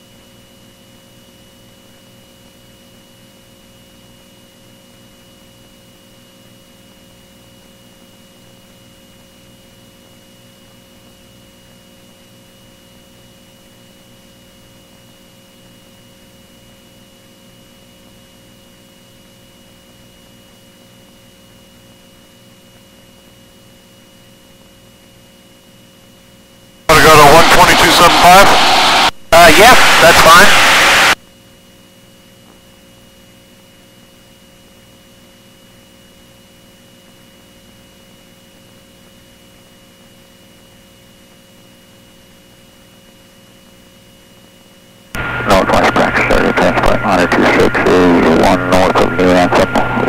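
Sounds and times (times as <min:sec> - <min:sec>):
electrical hum and hiss: 0:01.6 - 0:31.2, 0:31.8 - 0:50.0
thin high whine: 0:26.9 - 0:31.2, 0:45.2 - 0:50.0
muffled aircraft engine drone: 0:45.2 - 0:50.0.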